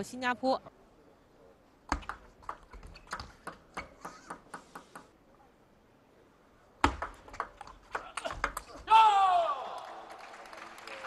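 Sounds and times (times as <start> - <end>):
table tennis ball clicking: 1.9 - 4.6.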